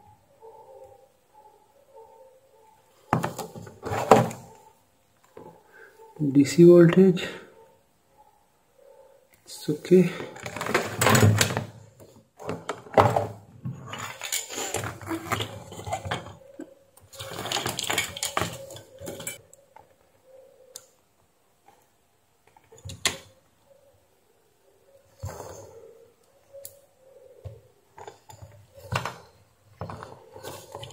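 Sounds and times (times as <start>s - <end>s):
objects clattering on a workbench: 3.1s - 4.6s, 10.1s - 19.4s, 27.5s - 30.9s.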